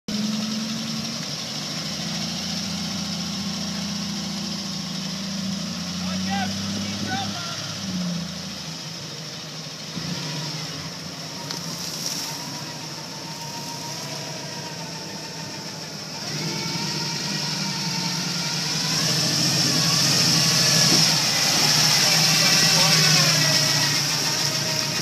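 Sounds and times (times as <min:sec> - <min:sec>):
off-road vehicle engine revving: 0:00.1 - 0:25.0
vehicle driving through muddy water: 0:00.1 - 0:25.0.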